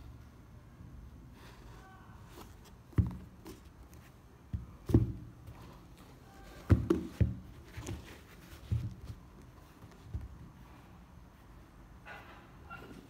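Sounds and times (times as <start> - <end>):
sneakers knocking on table: 4.5 - 5.3, 6.6 - 8.0.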